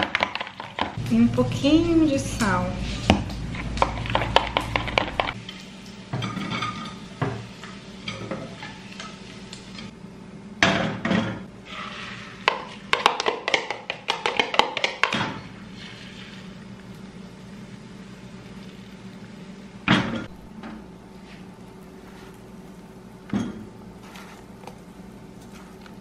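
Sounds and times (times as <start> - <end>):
spatula scraping in frying pan: 11.6 - 13.7, 15.4 - 16.6, 21.2 - 22.8, 24.0 - 24.8.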